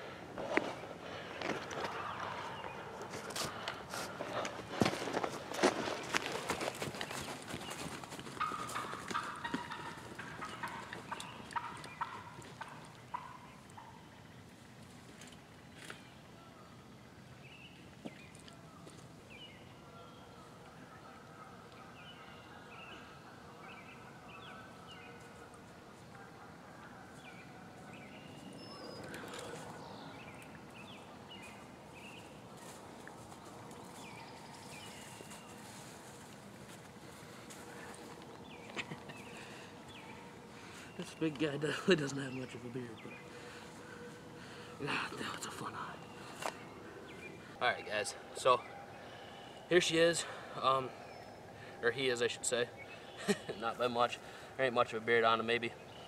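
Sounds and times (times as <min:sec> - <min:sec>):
small birds chirping: 0:00.0 - 0:56.0
footsteps crunching dry leaves: 0:01.4 - 0:10.1, 0:31.4 - 0:39.4.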